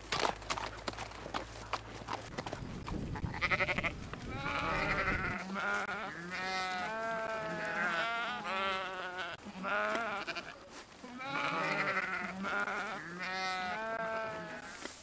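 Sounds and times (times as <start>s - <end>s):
sheep bleating: 3.3s - 14.8s.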